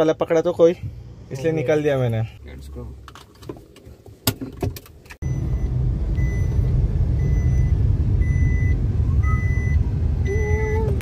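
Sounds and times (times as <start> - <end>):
car interior engine and road noise: 0.0 - 11.0
short electronic beeps: 5.2 - 9.8.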